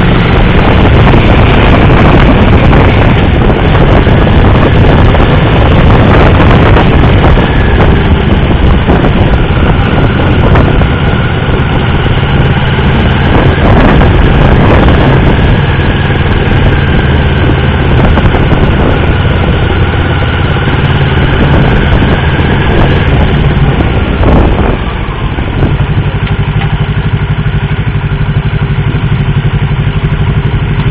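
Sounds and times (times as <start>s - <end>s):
motorcycle engine idling: 0.0s - 30.9s.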